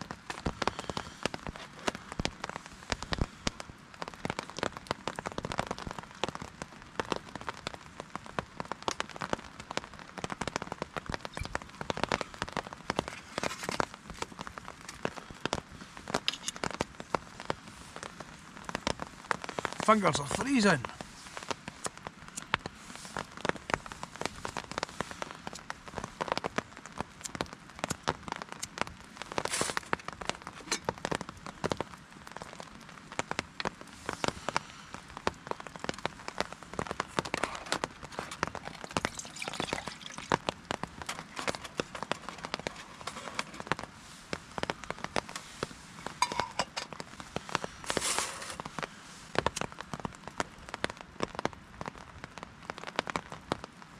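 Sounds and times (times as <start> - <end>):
heavy rain on a tarp: 0.0 - 53.9.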